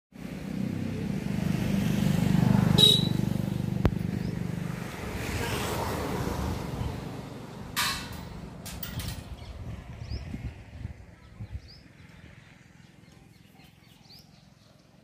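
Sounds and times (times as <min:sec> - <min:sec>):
vehicle engine passing by: 0:00.2 - 0:08.6.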